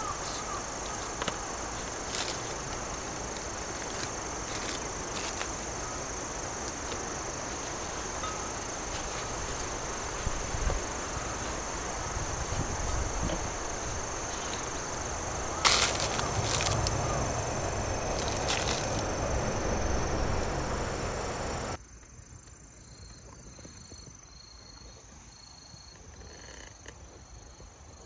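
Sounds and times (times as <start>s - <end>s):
insect chirring: 0.0s - 22.2s
outdoor background noise: 0.0s - 28.0s.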